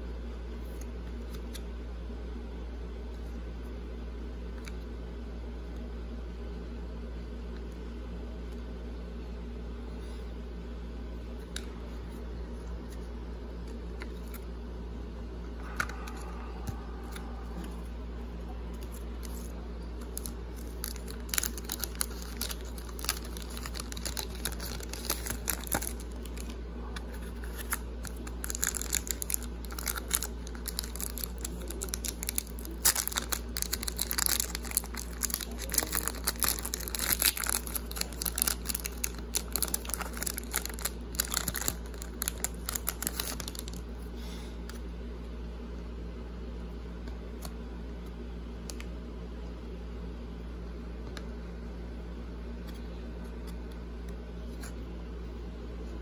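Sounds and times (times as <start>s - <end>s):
steady low hum: 0.0s - 56.0s
foil wrapper crinkling and tearing: 18.9s - 43.8s.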